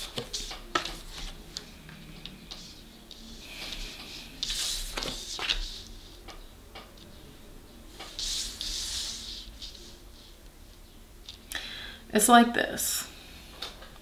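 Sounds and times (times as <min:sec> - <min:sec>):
cards swishing: 0:03.6 - 0:05.8.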